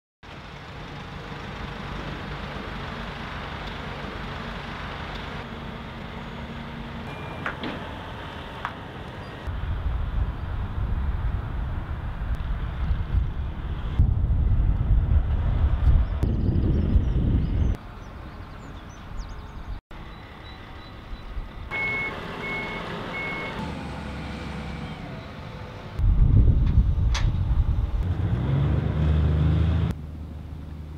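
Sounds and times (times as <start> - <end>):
outdoor noise: 0.2 - 30.9
truck diesel engine running: 0.3 - 14.0
reversing alarm beeps: 7.1 - 7.6, 21.7 - 23.6
wind on microphone: 9.5 - 17.8, 26.0 - 28.1.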